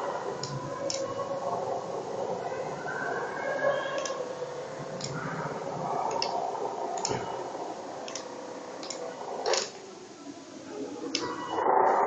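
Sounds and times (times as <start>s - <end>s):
relays clicking: 0.0s - 1.2s, 3.9s - 5.4s, 6.0s - 7.4s, 8.0s - 9.8s
wiper motors humming: 0.0s - 12.0s.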